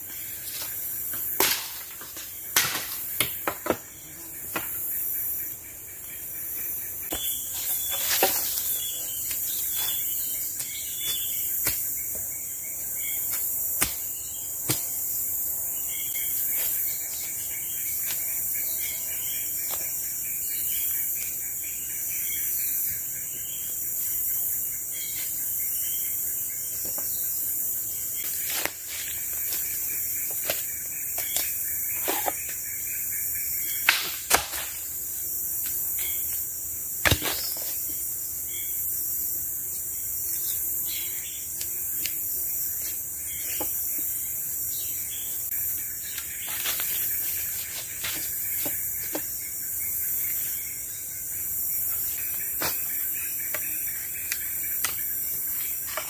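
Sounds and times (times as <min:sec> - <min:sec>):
insects buzzing: 0:00.0 - 0:56.0
machete chopping wooden poles: 0:01.3 - 0:03.9, 0:10.6 - 0:12.1, 0:13.3 - 0:14.9, 0:30.3 - 0:32.6, 0:33.8 - 0:34.9, 0:37.0 - 0:37.7.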